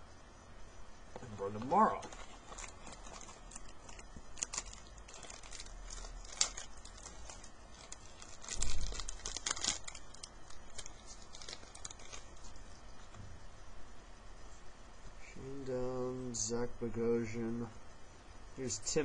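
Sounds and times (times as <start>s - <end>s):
paper cards rustling: 1.2s - 13.2s.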